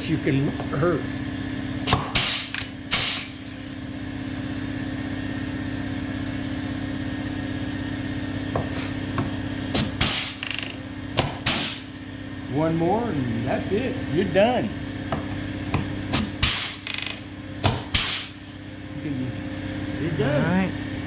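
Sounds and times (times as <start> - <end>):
steady hum: 0.0 - 21.0
rivet gun hissing bursts: 1.9 - 3.4, 9.8 - 10.4, 11.4 - 11.9, 16.1 - 16.8, 17.9 - 18.4.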